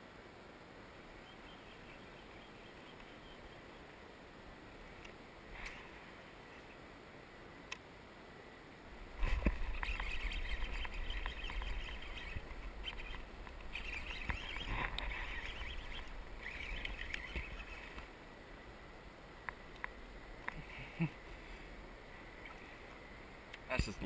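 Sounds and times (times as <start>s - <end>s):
fishing reel whirring: 9.2s - 18.1s.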